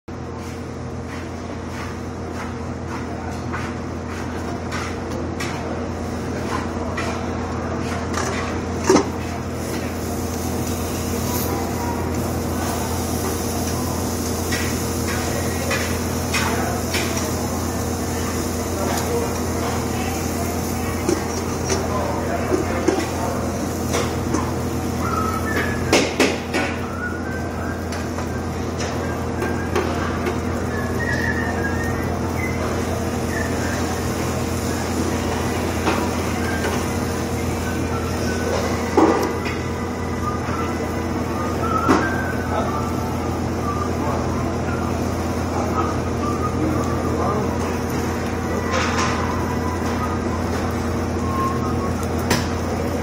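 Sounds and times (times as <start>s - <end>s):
kitchen machine hum: 0.1s - 53.0s.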